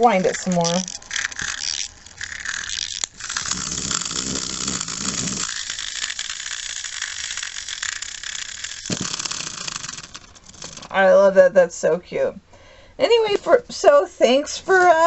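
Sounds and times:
clockwork winding clicks: 0:00.0 - 0:11.0.

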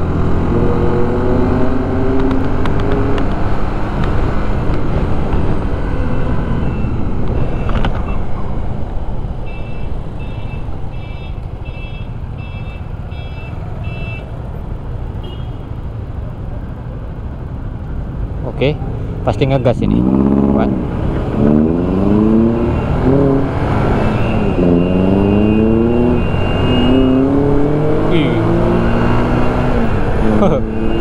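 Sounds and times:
wind and road noise: 0:00.0 - 0:31.0.

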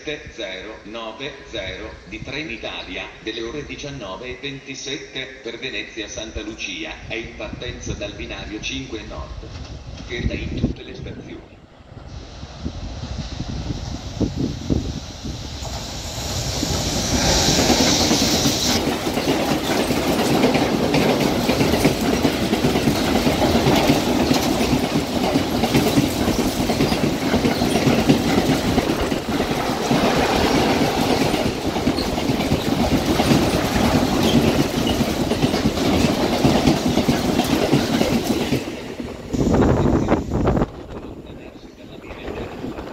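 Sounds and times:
freight train rumble: 0:00.0 - 0:42.9
locomotive rushing past: 0:11.4 - 0:42.9
wheel clatter over rail joints: 0:17.6 - 0:39.0.

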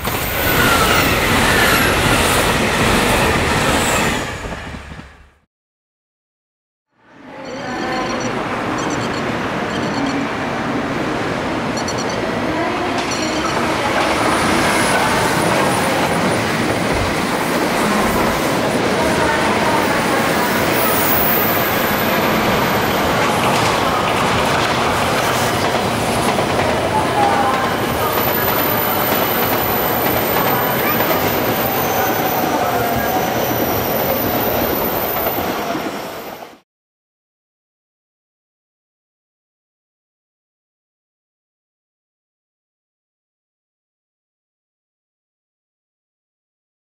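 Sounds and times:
train wheels on track: 0:00.0 - 0:05.4, 0:07.5 - 0:36.6.

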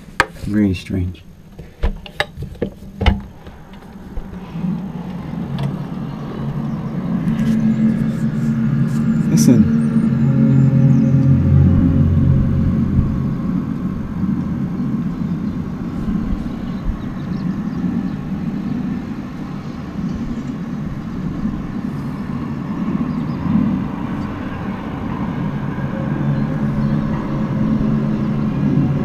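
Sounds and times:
low droning rumble with hum: 0:00.0 - 0:29.0.

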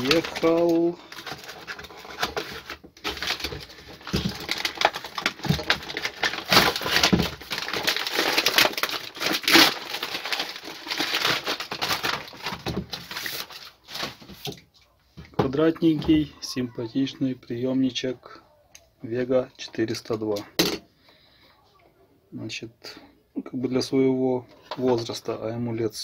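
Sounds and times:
paper and plastic rustling and ripping: 0:00.0 - 0:14.7.

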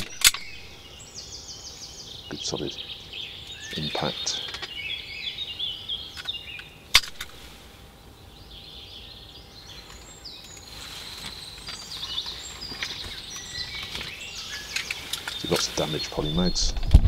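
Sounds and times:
songbirds singing: 0:00.0 - 0:16.9
sharp click: 0:06.2 - 0:07.3.

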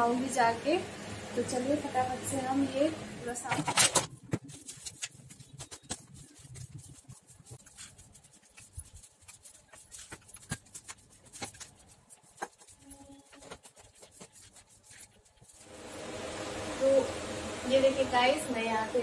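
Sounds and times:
rubbing and scraping: 0:03.4 - 0:15.8.

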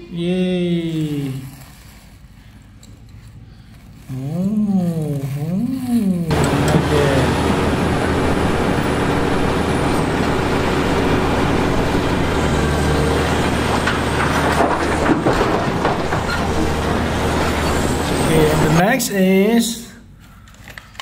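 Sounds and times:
excavator diesel engine running: 0:06.3 - 0:18.8.

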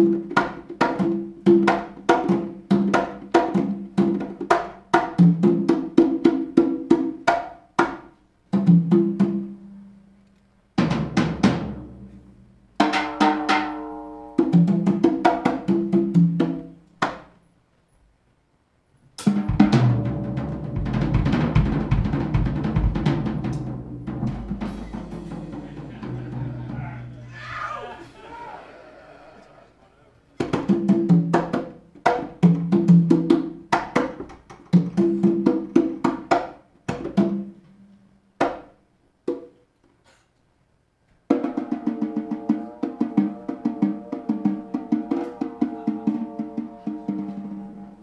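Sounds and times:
congas played by hand: 0:00.0 - 0:09.6, 0:12.8 - 0:17.3, 0:19.2 - 0:26.8, 0:30.4 - 0:37.6, 0:41.3 - 0:48.0
drum kit playing: 0:19.2 - 0:27.4
cymbal crash: 0:24.3 - 0:26.5.

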